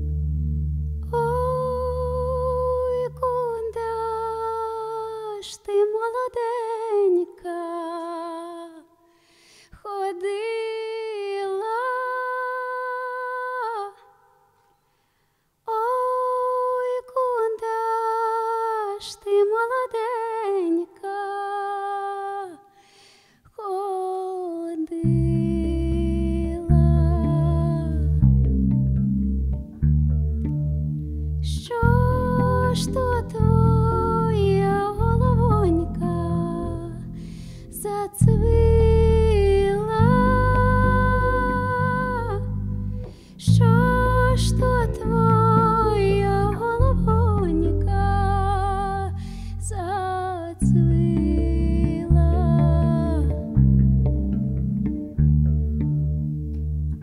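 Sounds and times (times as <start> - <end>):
electric bass guitar: 0.0 - 4.4, 25.0 - 57.0
woman singing: 1.0 - 9.0, 9.8 - 14.4, 15.7 - 22.8, 23.5 - 28.2, 31.4 - 42.6, 43.4 - 53.6.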